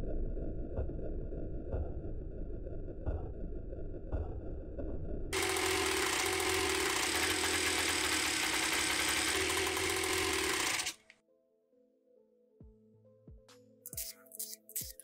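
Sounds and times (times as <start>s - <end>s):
two-stroke engine running: 5.4s - 11.1s
soft background music: 11.2s - 15.0s.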